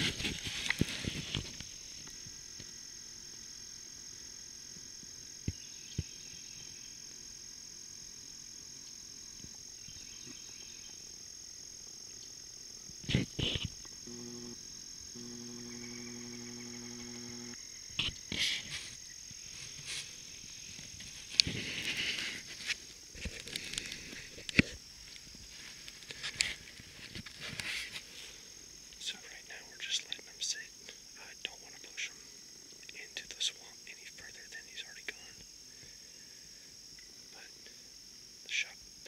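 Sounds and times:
high-pitched insect chorus: 0.0s - 39.0s
low mechanical hum: 13.1s - 17.6s.

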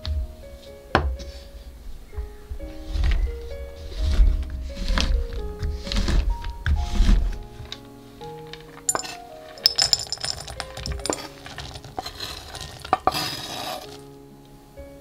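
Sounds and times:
soft background music: 0.0s - 15.0s
chocolate pieces clinking in glass bowl: 8.8s - 13.5s.

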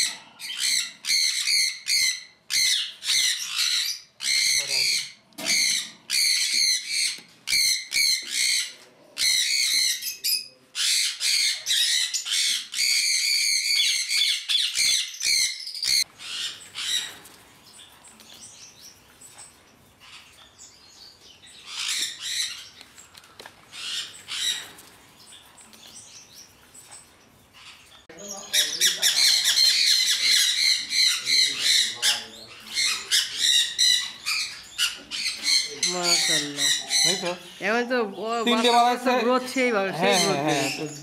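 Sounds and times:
parrots screeching: 0.0s - 17.2s, 21.5s - 22.8s, 23.7s - 24.8s, 27.6s - 37.6s, 40.0s - 41.0s
finches chirping: 23.7s - 41.0s.

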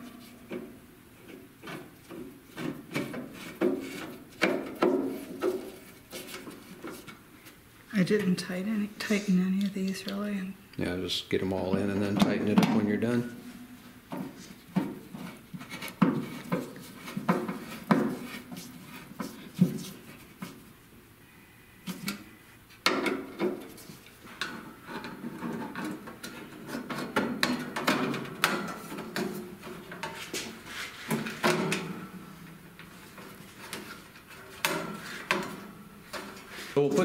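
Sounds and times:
sheet metal panels scraping: 22.9s - 37.0s.

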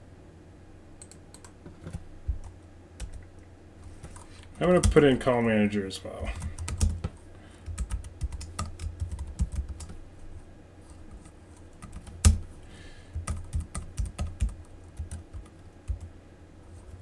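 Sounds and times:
typing on computer keyboard: 6.3s - 10.0s, 11.1s - 12.4s, 13.1s - 16.1s.

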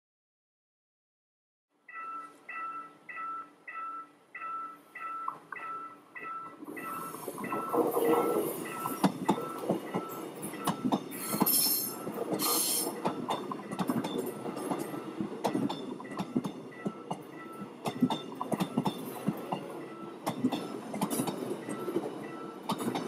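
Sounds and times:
level crossing warning bell: 1.8s - 23.0s
train wheels clacking over rail joints: 5.3s - 23.0s.

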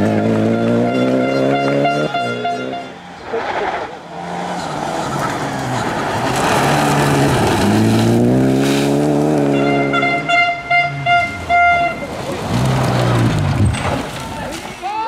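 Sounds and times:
rally car engine: 0.0s - 14.8s
tyre noise: 0.0s - 15.0s
gravel spray: 5.0s - 9.6s.

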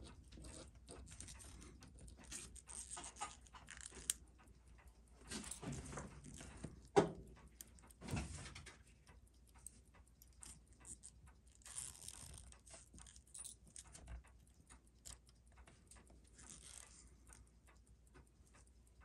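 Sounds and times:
small tools clicking and rustling: 0.0s - 4.2s, 9.6s - 14.3s, 15.0s - 17.2s.

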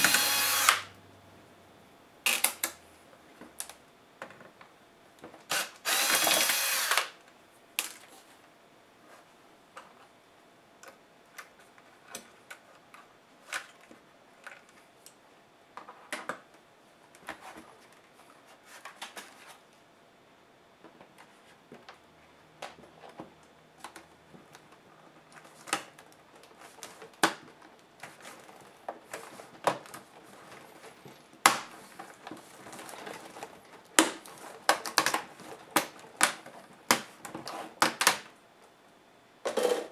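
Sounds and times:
electric screwdriver running: 0.0s - 0.9s, 5.5s - 7.2s.

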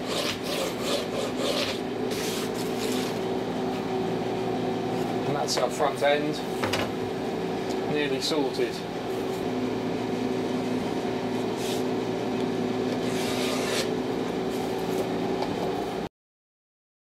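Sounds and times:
hand plane shaving wood: 0.0s - 3.2s, 13.0s - 13.9s
steady background hum: 0.0s - 16.1s.

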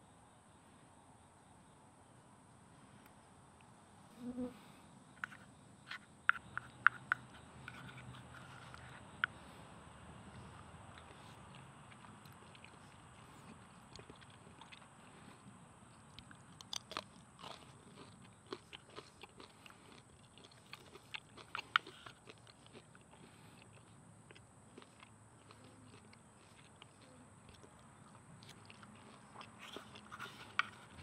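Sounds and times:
wooden spoon on wooden plate: 5.2s - 9.0s
chewing crunches: 10.3s - 31.0s.

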